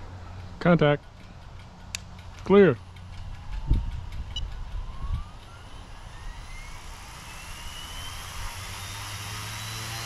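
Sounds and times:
rotor low hum: 0.0 - 10.0
electric motor whine rising: 3.4 - 10.0.

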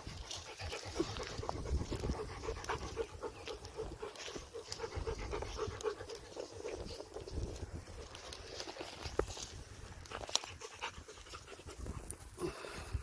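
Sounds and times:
large dog panting: 0.0 - 7.3, 10.0 - 12.4.

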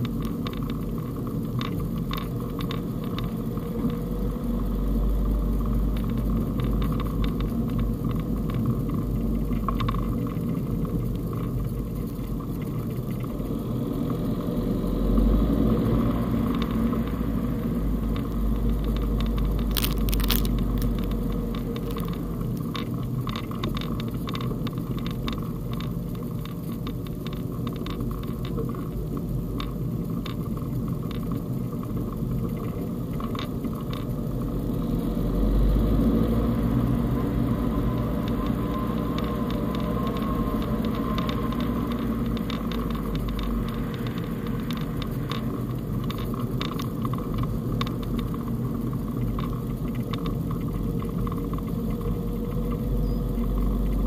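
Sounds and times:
car engine and road rumble: 0.0 - 54.0
tyre crackles: 19.0 - 22.9.

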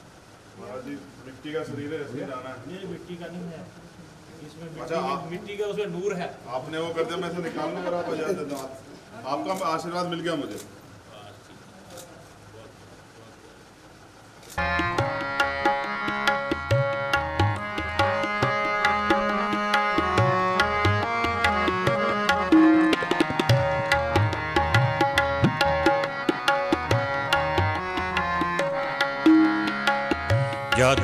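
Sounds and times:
sustained melodic chords: 14.6 - 31.0
tabla playing a steady beat: 14.6 - 31.0.

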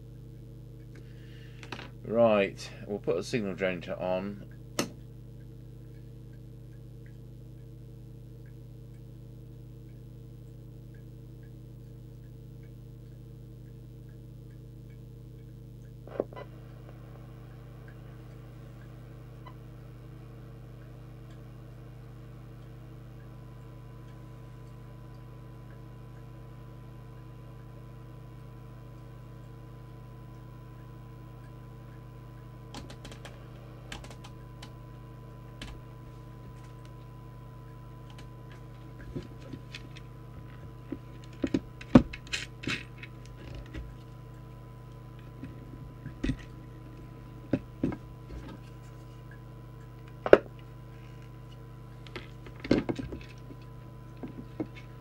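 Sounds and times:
faint regular ticking: 0.0 - 16.1, 16.8 - 55.0
electrical hum: 0.0 - 55.0
faint steady test tone: 0.0 - 55.0
sharp clicks: 32.7 - 34.8.

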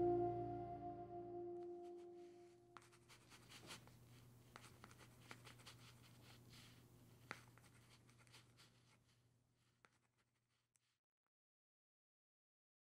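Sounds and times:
soft ambient music: 0.0 - 2.7
pen scratching on paper: 2.8 - 11.0.

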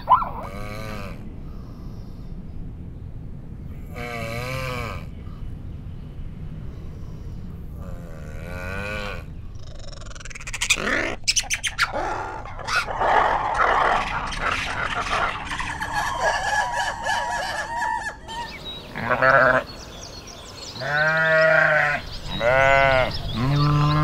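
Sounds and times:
lemurs chirping calls: 0.0 - 0.6, 9.6 - 24.0.

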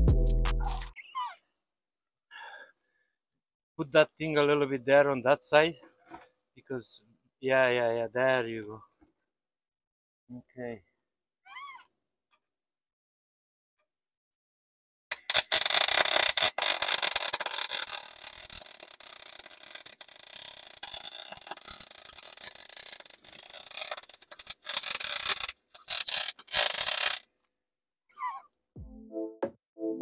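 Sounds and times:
welder arc crackling and sputtering: 15.1 - 27.2.

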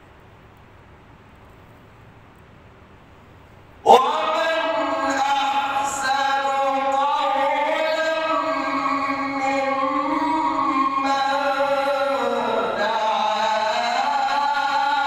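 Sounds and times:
man chanting melodically: 3.9 - 15.0.

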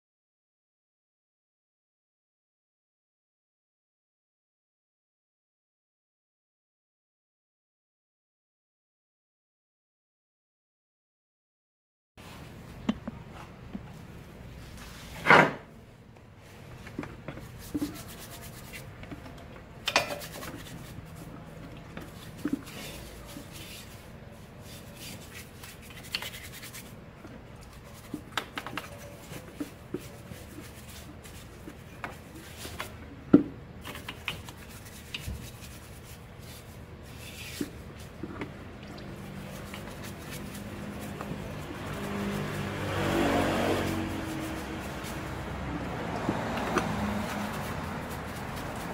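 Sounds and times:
brush scrubbing metal: 17.4 - 19.0, 19.9 - 27.0, 39.1 - 48.9
liquid dripping: 38.4 - 39.9.

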